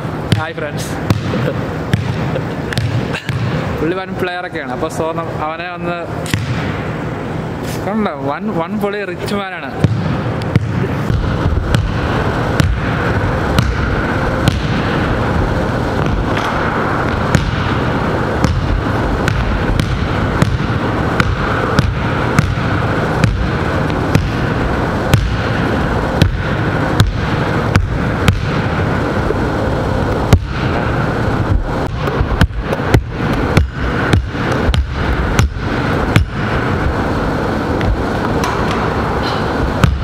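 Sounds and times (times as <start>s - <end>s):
loud noisy background: 0.0s - 40.0s
basketball bouncing on hard court: 0.3s - 3.7s, 6.3s - 6.7s, 9.8s - 15.1s, 16.0s - 29.4s, 30.2s - 30.8s, 31.8s - 36.5s, 39.8s - 40.0s.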